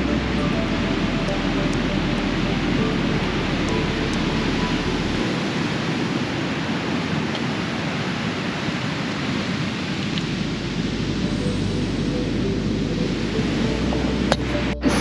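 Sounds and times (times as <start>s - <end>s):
wind: 0.0s - 15.0s
ocean surf: 5.2s - 10.9s.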